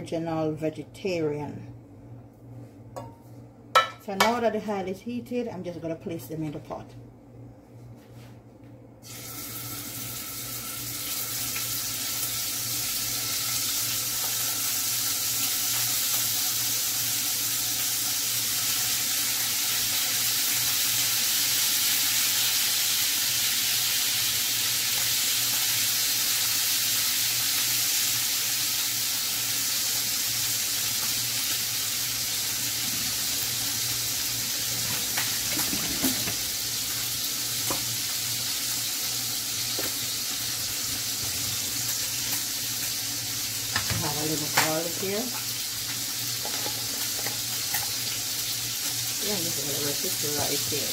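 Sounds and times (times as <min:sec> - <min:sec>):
food sizzling in a pot: 0:09.0 - 0:50.9.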